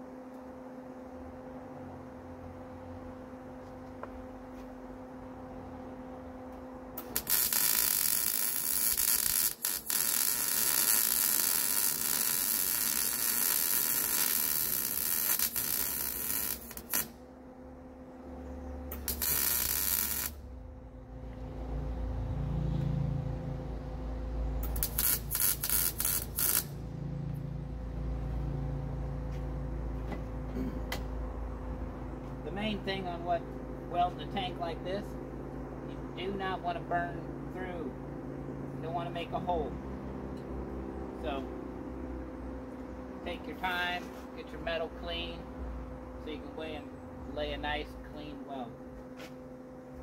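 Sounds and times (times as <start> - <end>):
steady low hum: 0.0 - 50.0
welder arc crackling: 7.0 - 17.2, 18.9 - 20.5, 24.6 - 26.8
low rumble: 20.0 - 32.5.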